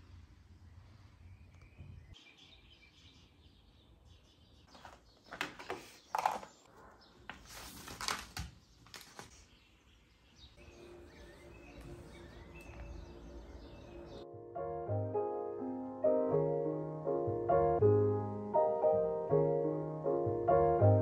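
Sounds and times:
book pages rustling: 4.7 - 9.6.

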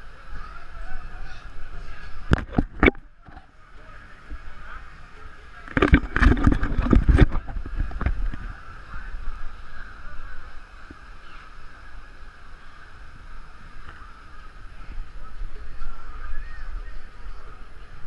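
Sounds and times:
muffled rumble: 5.6 - 18.0.

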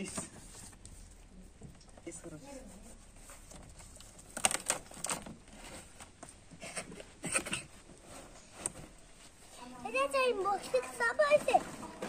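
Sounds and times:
bicycle handled in cardboard box: 3.2 - 6.3.

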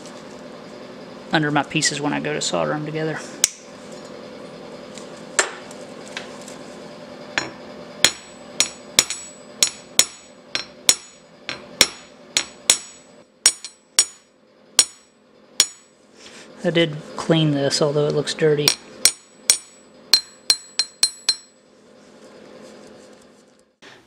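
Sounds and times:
hammer striking metal anvil: 7.4 - 15.9, 18.6 - 21.6.

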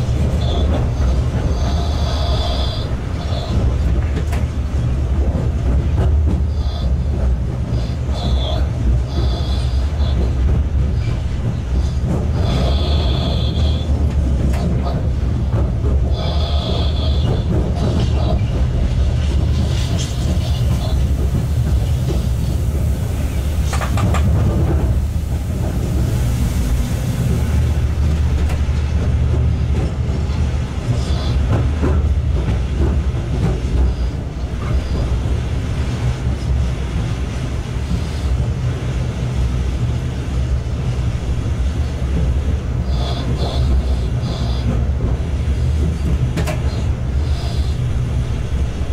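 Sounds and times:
wheels clacking over rail joints: 0.0 - 26.4, 41.6 - 48.9
locomotive running gear rumble: 0.0 - 48.9.

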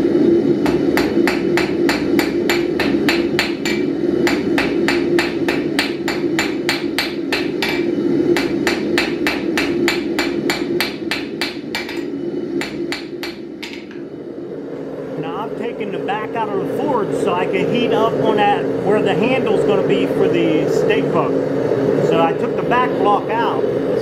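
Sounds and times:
steady low hum: 0.0 - 24.0
hammer striking steel on anvil: 0.6 - 14.0.

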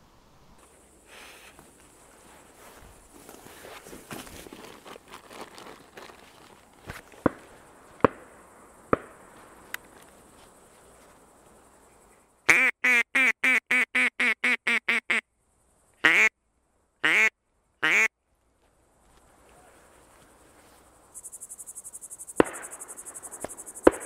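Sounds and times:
duck quacking: 12.5 - 15.2, 16.0 - 16.3, 17.0 - 18.1.

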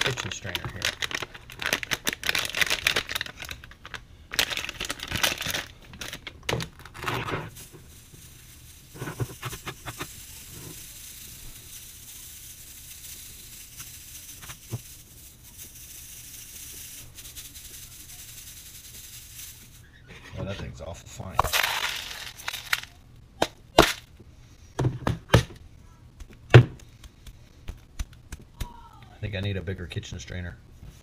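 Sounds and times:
bag crinkling: 0.0 - 12.0, 21.4 - 23.0
pebbles clicking: 0.0 - 19.8, 21.4 - 23.0.

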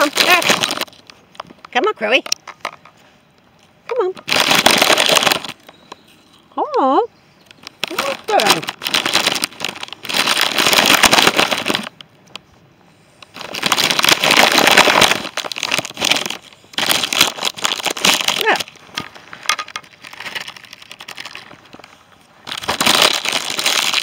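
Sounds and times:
plastic bag crinkling: 0.0 - 1.3, 4.2 - 5.9, 7.5 - 12.0, 13.2 - 24.0.

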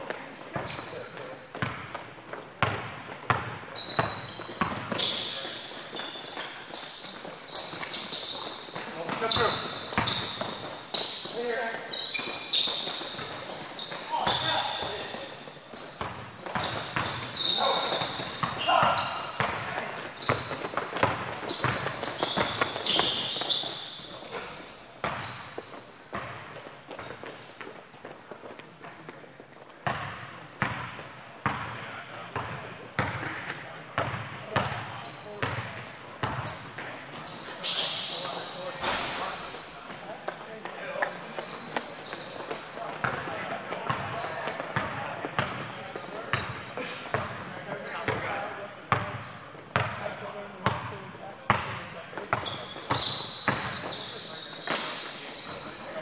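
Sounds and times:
sneaker squeaks on court: 0.5 - 29.0, 29.8 - 40.1, 41.0 - 49.2, 49.8 - 50.9, 51.5 - 56.0
basketball bouncing on gym floor: 1.5 - 5.0, 29.8 - 36.9, 49.8 - 50.0
basketball bouncing: 2.6 - 5.0, 17.9 - 23.2.

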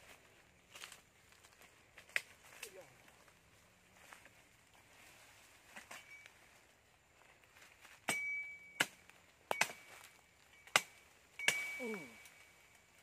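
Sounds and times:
blade chopping bamboo: 10.7 - 12.1
short ringing tone: 11.4 - 12.7.

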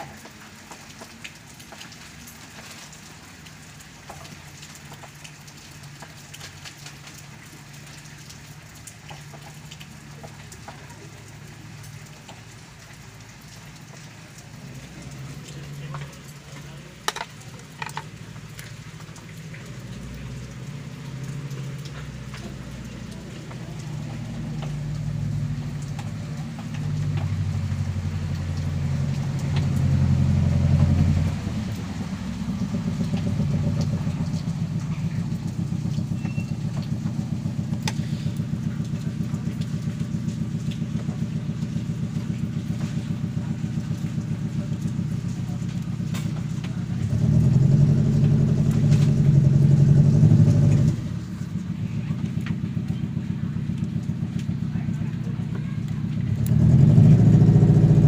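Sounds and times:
engine idling: 14.3 - 58.0.

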